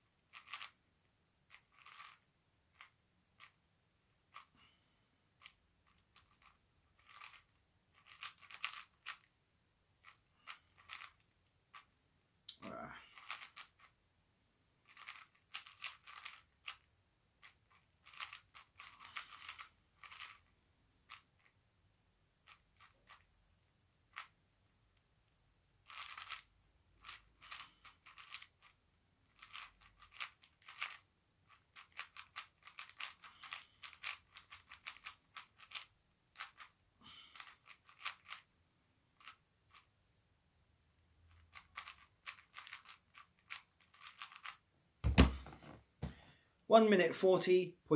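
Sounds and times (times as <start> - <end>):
puzzle cube plastic clicks: 0.2 - 0.8, 1.5 - 3.6, 5.4 - 11.9, 13.2 - 14.0, 14.8 - 21.6, 22.4 - 23.3, 24.1 - 24.4, 25.8 - 38.5, 39.2 - 39.9, 41.3 - 44.6.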